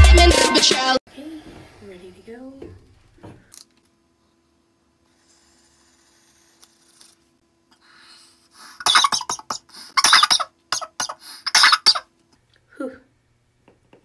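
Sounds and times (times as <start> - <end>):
person coughing harshly: 8.8 - 12.0
airy inhale hiss: 11.1 - 11.5.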